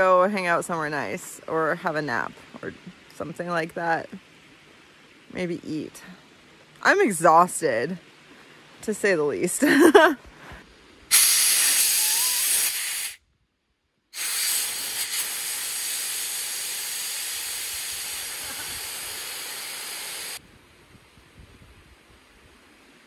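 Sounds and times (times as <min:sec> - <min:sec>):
air hissing out of valve: 0:11.1 - 0:13.2, 0:14.2 - 0:20.4.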